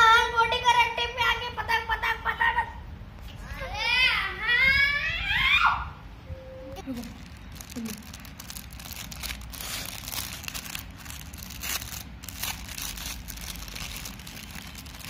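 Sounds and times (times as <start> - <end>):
plastic packet crinkling: 6.8 - 15.0.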